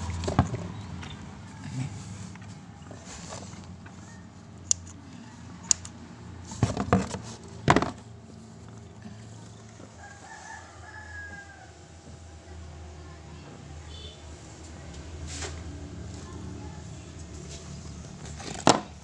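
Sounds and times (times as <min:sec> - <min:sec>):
rooster crowing: 0:09.9 - 0:12.0.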